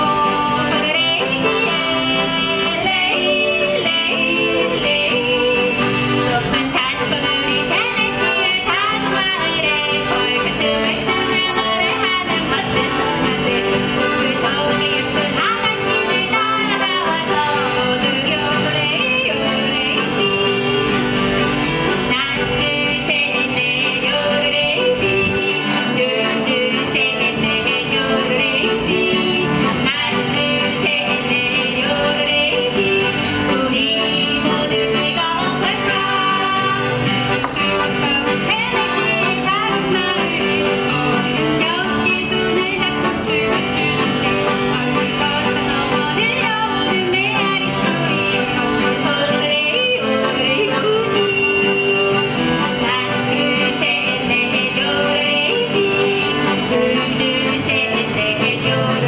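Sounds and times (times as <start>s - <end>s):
women yodeling: 0.0s - 21.0s, 22.1s - 37.0s, 37.7s - 59.0s
piano accordion: 0.0s - 59.0s
strummed acoustic guitar: 0.0s - 59.0s.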